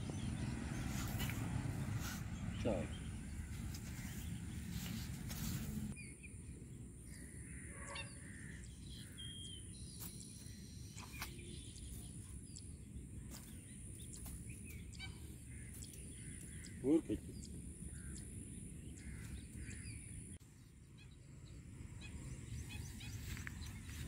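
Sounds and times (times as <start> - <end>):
rustle: 0.8 - 2.4, 3.4 - 6.0
faint bird chirps: 2.0 - 24.0.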